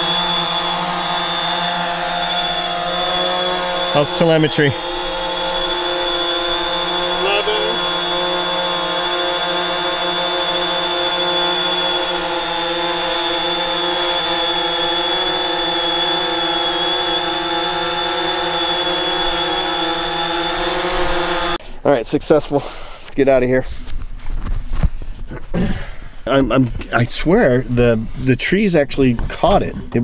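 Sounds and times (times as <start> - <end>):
thin high tone: 0.0 - 8.2
drone motors humming: 0.0 - 21.6.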